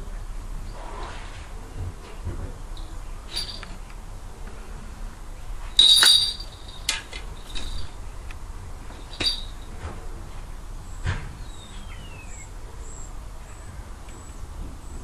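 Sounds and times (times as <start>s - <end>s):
small bells jingling: 3.3s - 3.8s, 5.8s - 8.0s, 9.0s - 9.7s.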